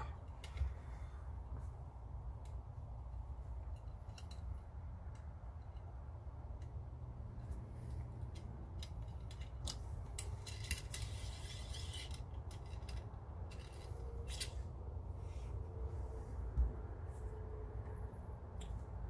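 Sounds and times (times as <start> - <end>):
metal parts clicking and knocking: 2.4 - 14.8
rubbing scrape: 10.5 - 12.8.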